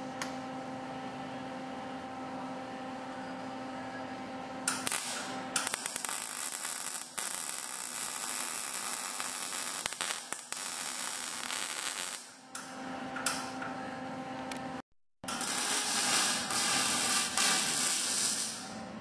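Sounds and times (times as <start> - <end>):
welding arc crackling: 4.7 - 12.4, 15.4 - 18.7.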